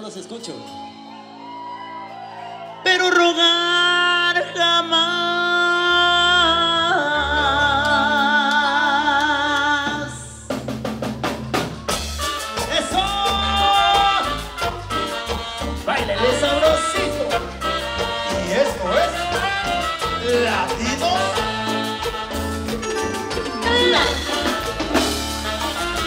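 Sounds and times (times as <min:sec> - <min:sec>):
latin dance band music: 0:00.0 - 0:26.0
drums and percussion: 0:07.8 - 0:26.0.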